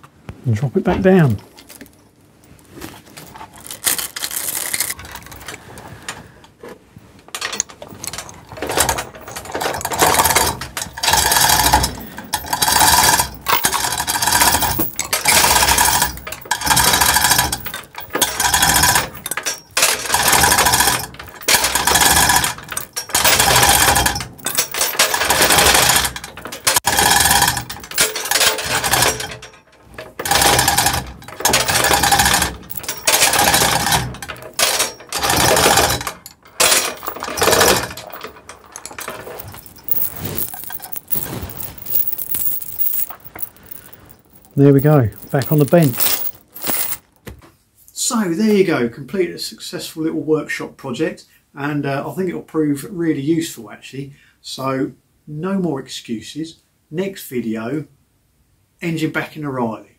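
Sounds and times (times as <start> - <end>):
hoist chain rattling: 7.4 - 47.1.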